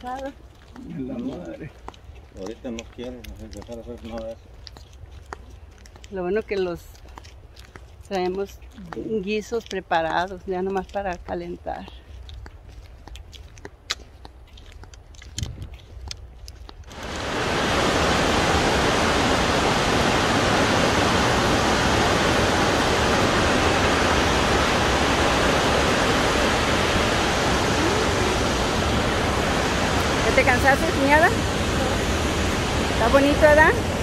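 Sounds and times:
waterfall rushing: 0:16.9 - 0:34.0.

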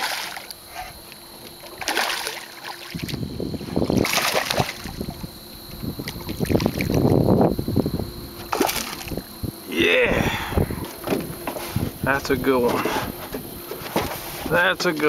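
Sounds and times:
fish thrashing and splashing: 0:00.0 - 0:07.3, 0:08.4 - 0:09.3
wind buffeting microphone: 0:02.9 - 0:15.0.

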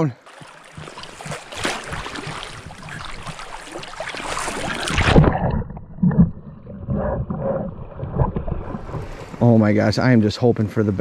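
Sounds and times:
river water rushing and splashing: 0:00.0 - 0:05.4.

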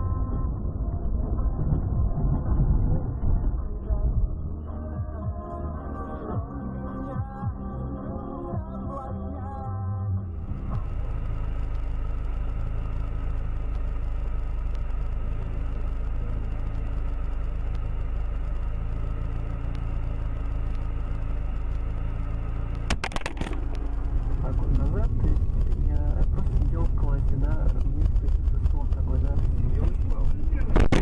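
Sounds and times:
car driving on road rumble: 0:00.0 - 0:31.0
sharp knocks: 0:22.9 - 0:23.6.

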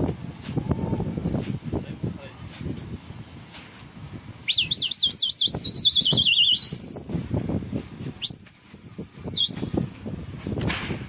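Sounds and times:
steady high whistle note: 0:04.4 - 0:07.4, 0:08.2 - 0:09.8
warbling high whistle: 0:04.4 - 0:07.5, 0:08.2 - 0:09.8.

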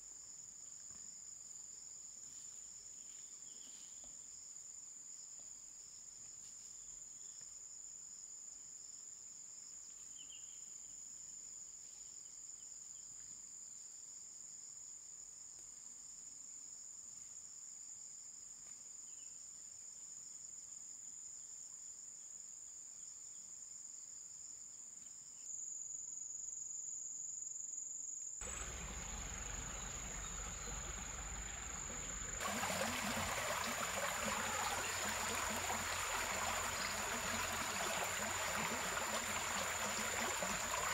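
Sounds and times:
insects chirping chorus: 0:00.0 - 0:40.9.

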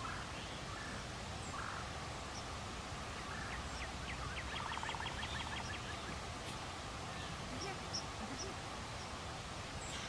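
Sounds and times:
outdoor background noise: 0:00.0 - 0:10.0
bird chirping rapidly: 0:03.4 - 0:06.2.

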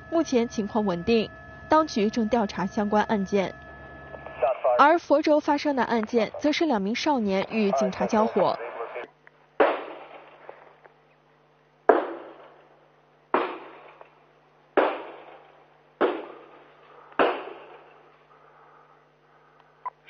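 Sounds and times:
echoing gunshots: 0:09.6 - 0:10.6, 0:11.9 - 0:12.6, 0:13.3 - 0:14.1, 0:14.8 - 0:18.1.

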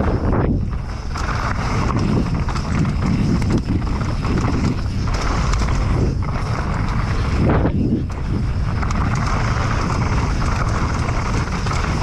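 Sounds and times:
mountain bike rattling over rough ground: 0:00.0 - 0:12.0
steady rushing noise: 0:00.0 - 0:12.0.

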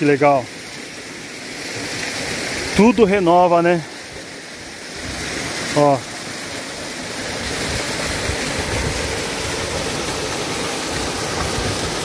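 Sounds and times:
waterfall rushing over rocks: 0:00.0 - 0:12.0.

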